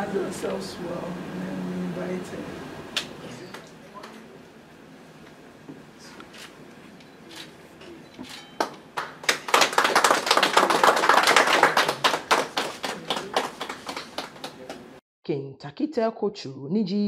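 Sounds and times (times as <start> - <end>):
people applauding: 8.6 - 15.0.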